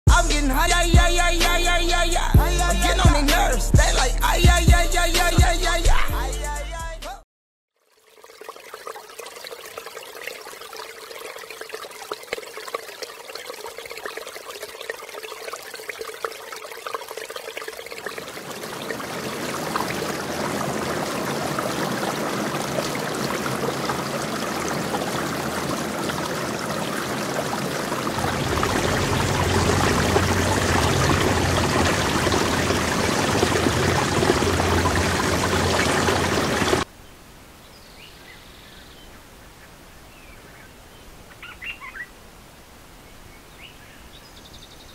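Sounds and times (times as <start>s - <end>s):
rushing water-like noise: 8.0s - 36.9s
low rumble: 28.1s - 36.8s.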